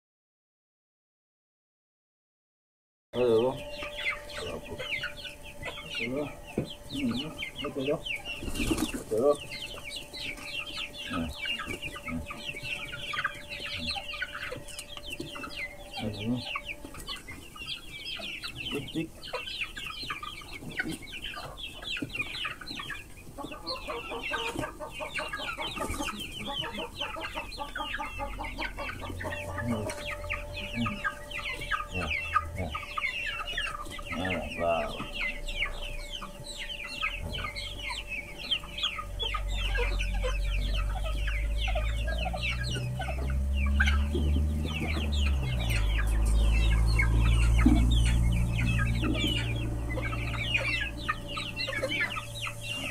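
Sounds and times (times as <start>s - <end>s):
chicks cheeping and clucking: 3.2s - 52.9s
low rumble: 28.7s - 52.9s.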